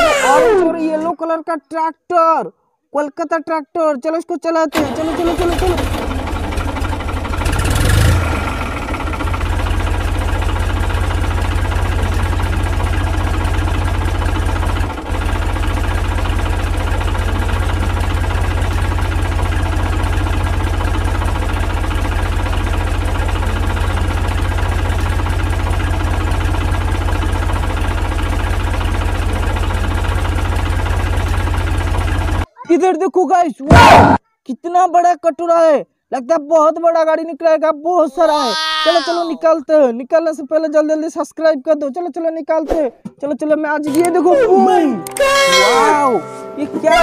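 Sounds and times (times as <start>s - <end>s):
tractor engine idling: 4.7s - 32.5s.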